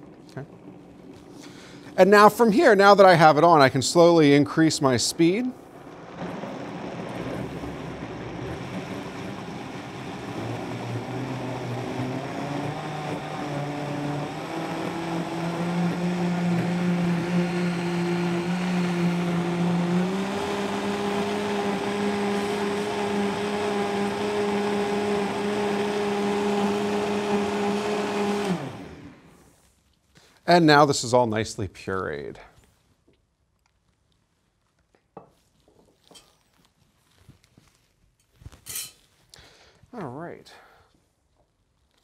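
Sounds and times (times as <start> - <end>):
blender motor running: 5.3 - 29.4.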